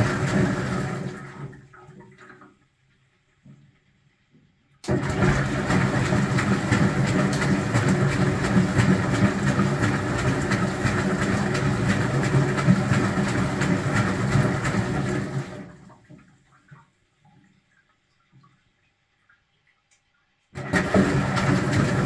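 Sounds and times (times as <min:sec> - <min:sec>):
washing machine motor humming: 0:00.0 - 0:01.6, 0:04.8 - 0:16.0, 0:20.6 - 0:22.0.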